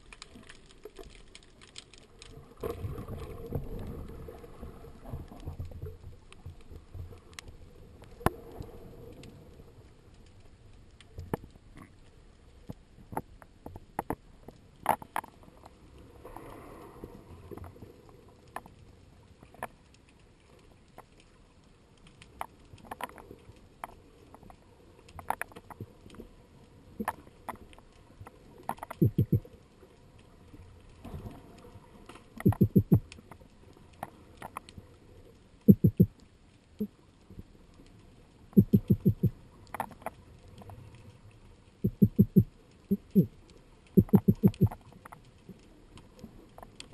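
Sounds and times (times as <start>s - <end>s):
underwater clicks and knocks: 12.6s - 15.7s, 22.3s - 25.9s, 27.0s - 29.5s, 32.4s - 33.4s, 34.0s - 34.7s, 35.7s - 36.2s, 38.5s - 40.8s, 41.8s - 43.3s, 43.9s - 45.2s
rapid low pulses: 32.5s - 33.0s, 35.7s - 36.1s, 38.6s - 39.3s, 41.9s - 43.3s.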